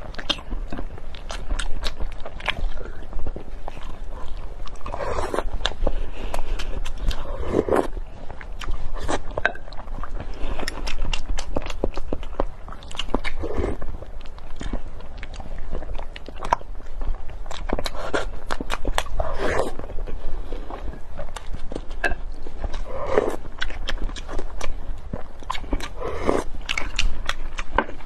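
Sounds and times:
chewing with wet mouth clicks: 0.0 - 28.0
slurping from a spoon: 6.6 - 7.9.

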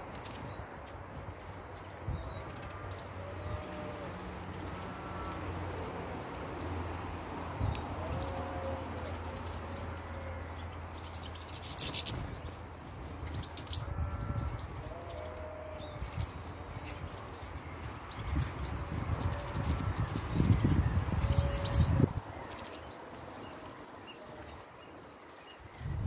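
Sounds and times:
doves cooing: 2.7 - 6.5, 7.8 - 10.6, 21.0 - 22.6
finches chirping: 9.1 - 25.6.

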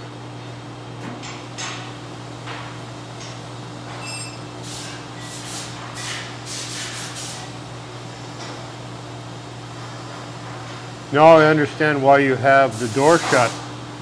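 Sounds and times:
brief high ring: 4.0 - 4.4
oil spraying hiss: 12.7 - 13.6.

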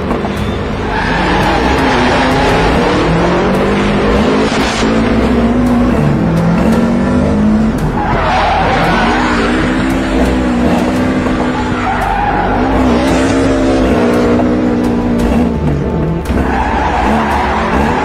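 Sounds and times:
tyres squealing on pavement: 0.4 - 2.8, 7.8 - 13.2, 16.3 - 18.0
car engine revving high: 1.0 - 18.0.

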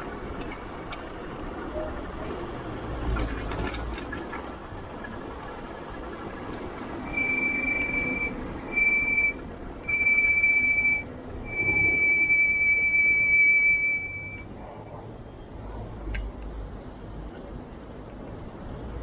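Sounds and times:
high steady beeping tone: 7.0 - 14.5.

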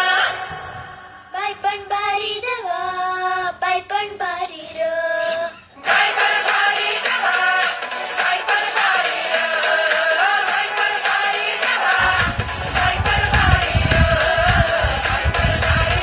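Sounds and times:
high singing voice: 0.0 - 16.0
background music: 5.9 - 16.0.

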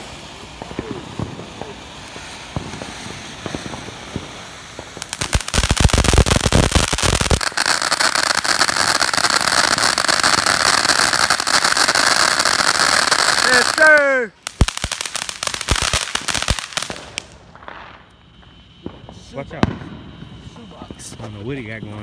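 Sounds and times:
firework pops and bangs: 0.0 - 20.2
fireworks crackling: 0.0 - 22.0.

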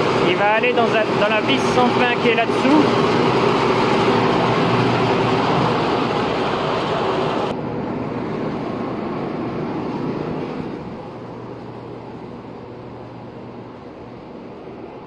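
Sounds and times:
processing machinery running: 0.0 - 15.0.

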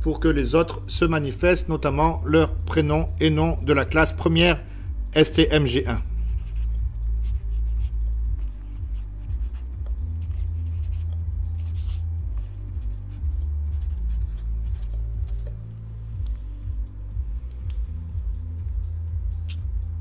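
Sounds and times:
low hum: 0.0 - 20.0
marker scratching on paper: 5.6 - 16.4.

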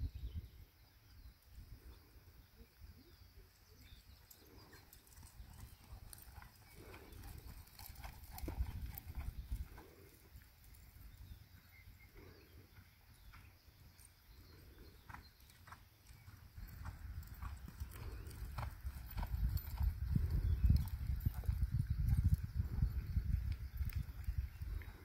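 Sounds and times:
horse hoofbeats on soft dirt: 3.9 - 25.0.

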